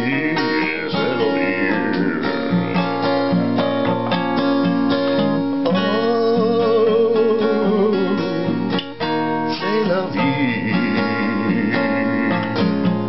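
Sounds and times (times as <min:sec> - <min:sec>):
man singing held note: 0:00.0 - 0:03.0
acoustic guitar strumming: 0:00.0 - 0:13.0.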